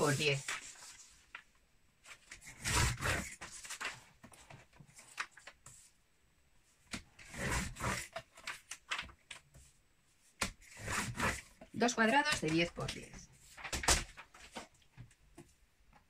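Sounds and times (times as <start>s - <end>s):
paper rustling and scraping: 0.0s - 5.9s, 7.2s - 9.7s, 10.6s - 14.8s.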